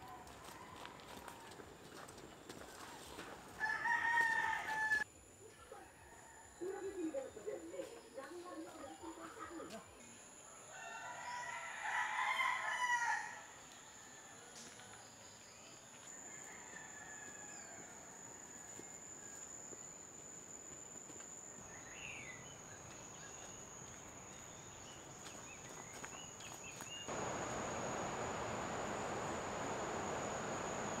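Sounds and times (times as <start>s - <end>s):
high insect trill: 27.1s - 31.0s
hissing insect chorus: 27.1s - 31.0s.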